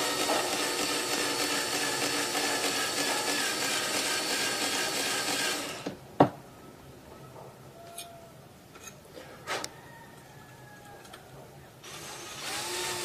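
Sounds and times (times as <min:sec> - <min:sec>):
cordless drill boring steel: 0:00.0 - 0:05.9, 0:11.8 - 0:13.0.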